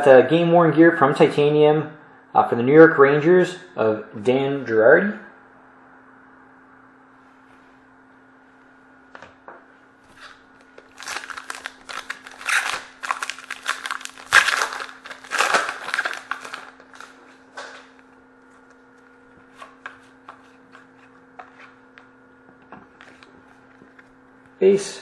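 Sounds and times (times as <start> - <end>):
wrapper tearing and crackling: 10.2 - 17.2.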